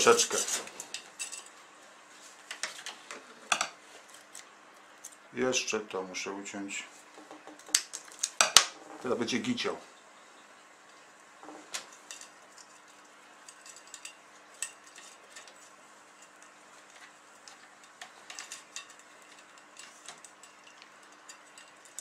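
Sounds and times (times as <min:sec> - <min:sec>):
small tools clicking and tapping: 0:07.2 - 0:08.8, 0:11.4 - 0:22.0.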